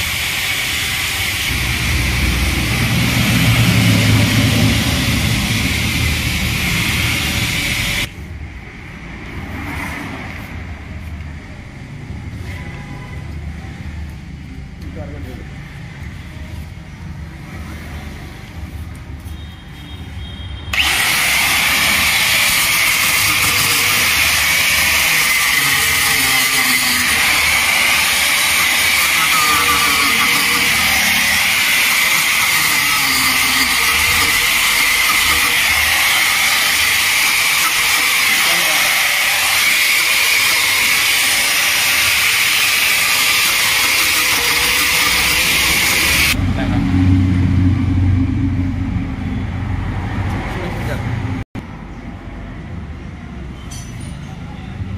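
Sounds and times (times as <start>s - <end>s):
power buffer rasping on rubber: 20.8s - 46.4s.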